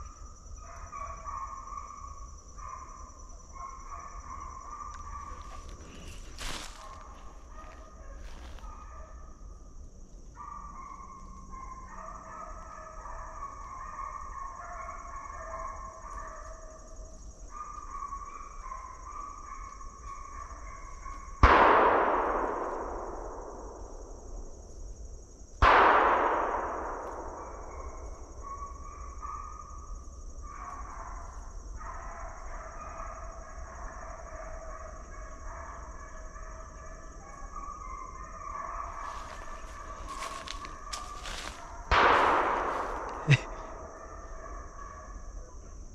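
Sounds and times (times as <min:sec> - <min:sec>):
distant hounds baying: 0:00.0 - 0:25.0, 0:25.6 - 0:45.9
gunshots echoing: 0:21.4 - 0:23.7, 0:25.6 - 0:27.6, 0:39.4 - 0:44.0.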